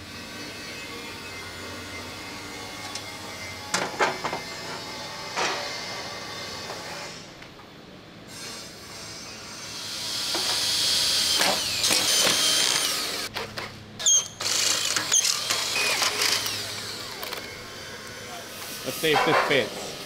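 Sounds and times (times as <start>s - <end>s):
drill boring through steel: 9.0s - 13.3s, 14.0s - 19.2s.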